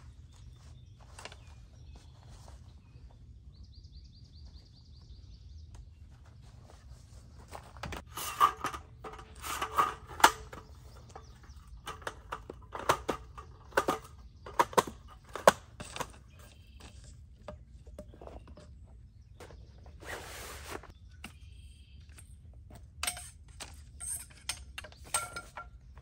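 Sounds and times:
camp furniture knocking and rattling: 7.4s - 16.7s, 24.1s - 26.0s.

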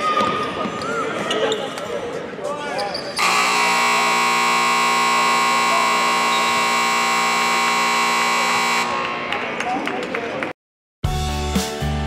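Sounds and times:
arena horn blast: 3.2s - 9.2s.

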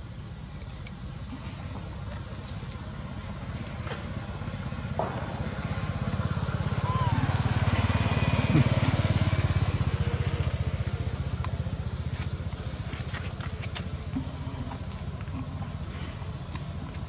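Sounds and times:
motorbike engine running: 3.3s - 17.0s
faint ticks: 11.4s - 17.0s.

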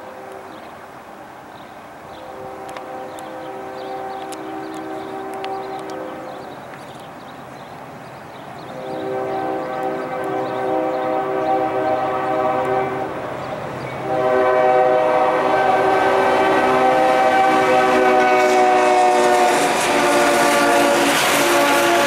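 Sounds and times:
passing train rumble: 0.0s - 22.0s
locomotive air horn blasts: 2.2s - 6.5s, 8.7s - 13.2s, 14.0s - 22.0s.

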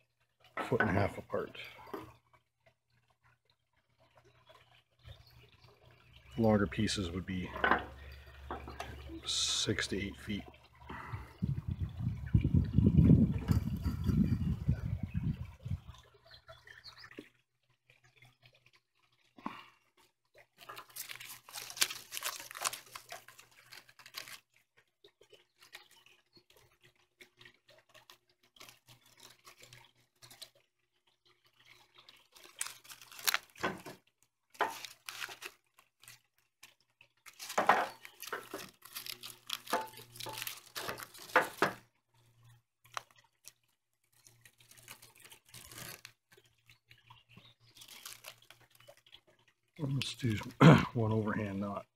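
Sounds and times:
twine pulled and wrapped: 20.4s - 31.1s, 31.9s - 47.0s, 47.6s - 50.6s
dry reeds rustling and crackling: 20.6s - 24.6s, 28.0s - 30.6s, 32.0s - 50.5s.

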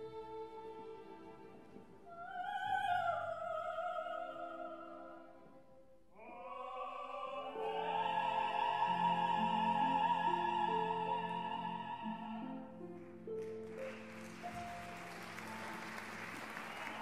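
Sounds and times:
orchestral strings: 0.0s - 5.7s, 6.6s - 17.0s
operatic duet singing: 2.0s - 13.0s.

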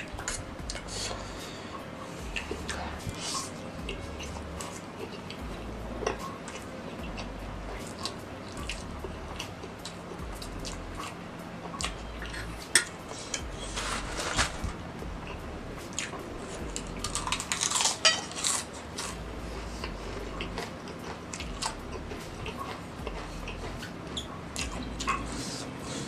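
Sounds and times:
close-up chewing: 2.2s - 12.6s, 15.2s - 26.0s
fork scraping metal tray: 12.3s - 14.7s
potato chip crunching: 13.6s - 19.3s.

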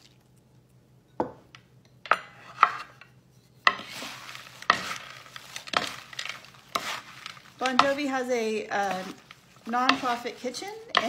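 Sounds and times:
salad leaves rustling: 3.7s - 11.0s
wooden servers knocking bowl: 7.6s - 8.2s, 8.9s - 11.0s.

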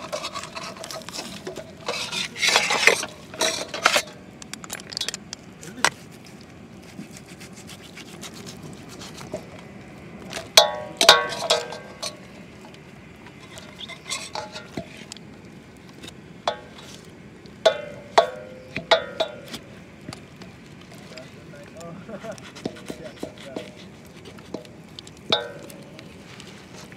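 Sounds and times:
knife cutting and scraping meat: 6.8s - 9.4s, 22.2s - 24.7s.

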